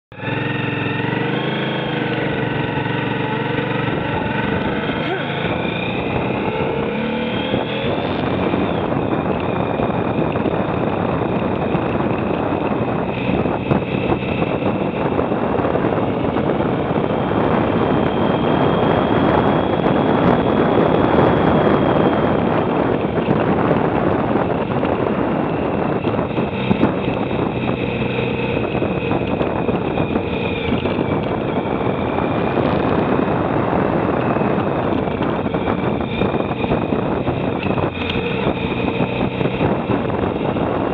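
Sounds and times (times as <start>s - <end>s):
motorcycle engine running: 0.1s - 40.9s
wind rushing over camera: 0.1s - 40.9s.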